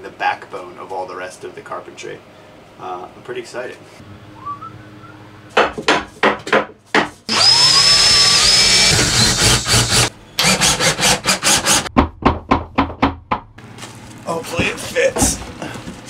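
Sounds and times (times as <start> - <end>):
cordless drill drilling into wood: 7.3 - 11.9.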